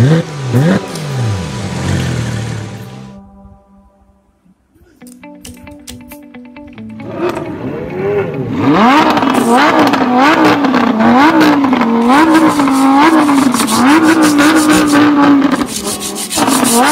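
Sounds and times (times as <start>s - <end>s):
engine revving noise: 0.0s - 3.2s, 7.0s - 16.9s.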